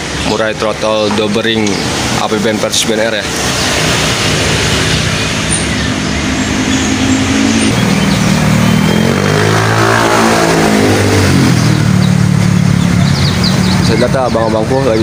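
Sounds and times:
vehicle engine revving: 0.0s - 15.0s
high bird chirps: 3.4s - 15.0s.

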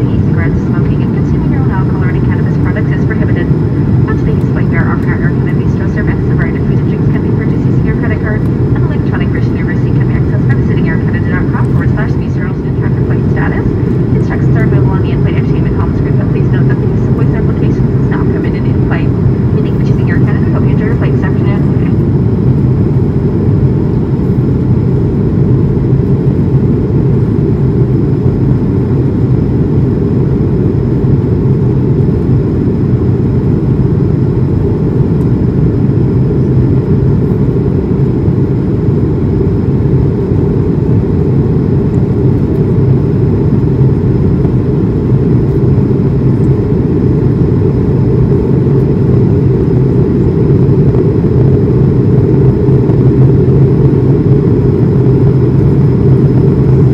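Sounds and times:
aircraft cabin engine rumble: 0.0s - 56.9s.

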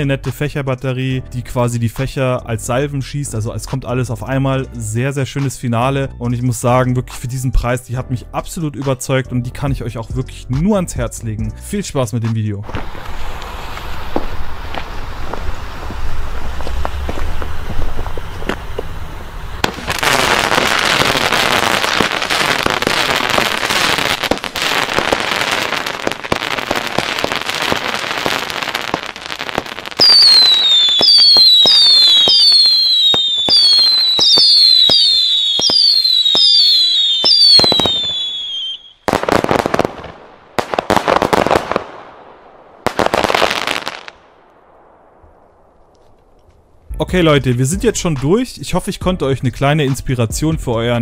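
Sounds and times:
loud firework volleys: 12.6s - 46.1s
falling firework whistles: 12.7s - 39.9s
firework battery shots: 12.7s - 46.4s.

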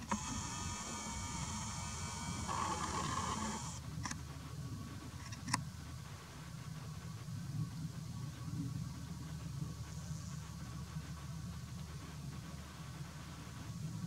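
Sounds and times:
camera zoom motor whirring: 0.0s - 3.8s
short clicks: 0.0s - 3.8s.

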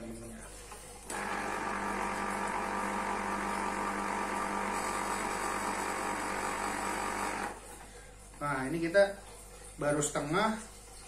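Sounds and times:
juicer motor humming: 1.0s - 8.0s.

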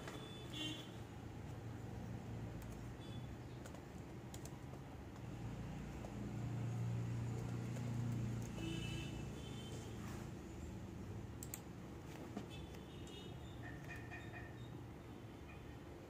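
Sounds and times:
laptop keyboard typing: 1.4s - 9.2s, 11.2s - 14.7s.

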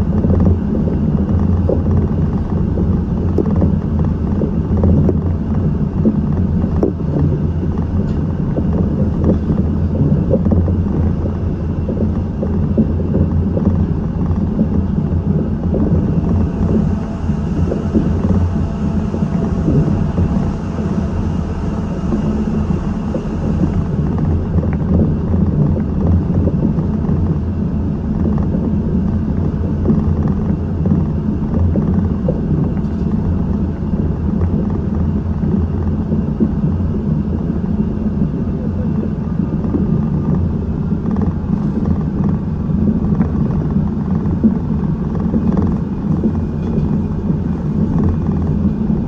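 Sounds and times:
faint steady whine: 0.0s - 49.0s
train running rumble: 0.0s - 49.0s.

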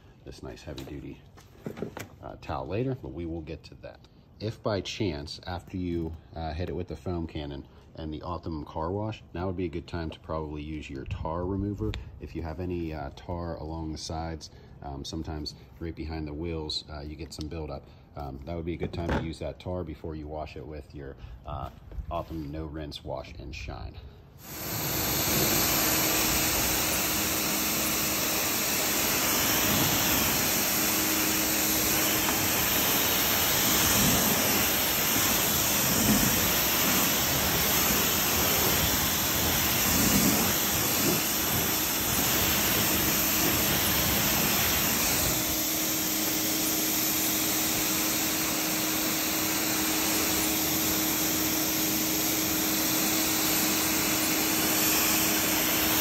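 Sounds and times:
motor and pump hum: 24.4s - 56.0s
pressure washer jet hissing: 24.4s - 56.0s.

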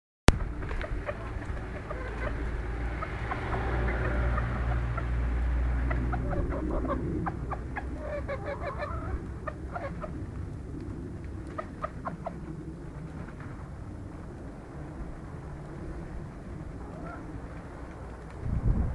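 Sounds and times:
hens clucking: 0.3s - 10.5s, 11.4s - 12.5s
low rumble: 0.3s - 18.9s.

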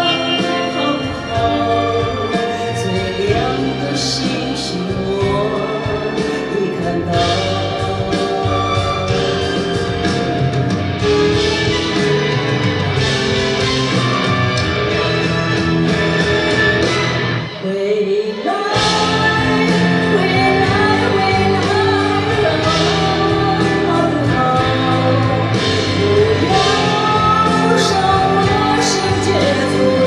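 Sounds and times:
woman singing pop song: 0.0s - 9.6s, 17.6s - 30.0s
backing music: 0.0s - 30.0s.

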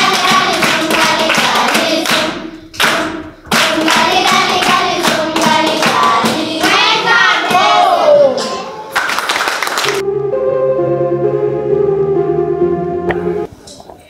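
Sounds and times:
children singing: 0.0s - 2.5s, 3.5s - 8.8s
hands clapping in rhythm: 0.0s - 10.0s.

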